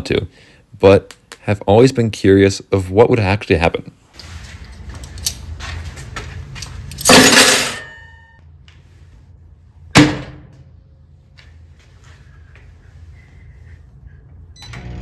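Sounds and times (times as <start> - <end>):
microwave oven humming: 14.5 - 15.0.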